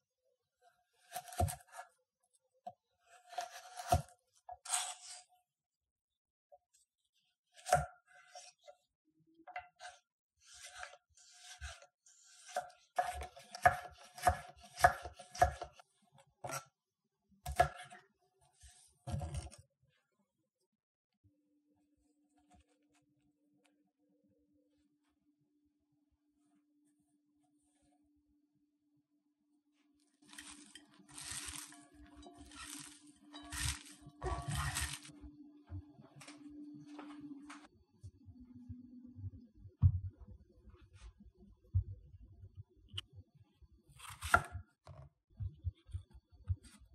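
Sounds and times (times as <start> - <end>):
knife slicing carrot: 1.0 - 1.9, 3.1 - 5.3, 9.8 - 15.8, 30.2 - 35.1, 43.9 - 45.0
knife chopping on wooden board: 1.1 - 1.8, 12.5 - 15.8, 30.3 - 31.8, 32.4 - 35.1, 44.0 - 45.0
hands kneading shredded vegetables: 30.2 - 35.1.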